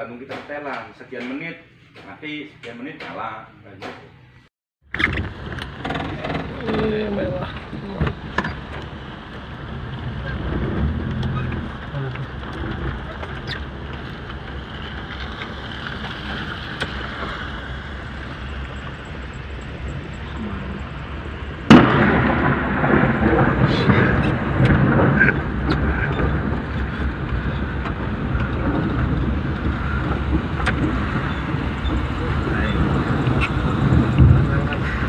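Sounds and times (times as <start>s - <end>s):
road noise inside car: 4.2s - 35.0s
rain on car: 5.3s - 35.0s
sudden loud crack: 21.6s - 35.0s.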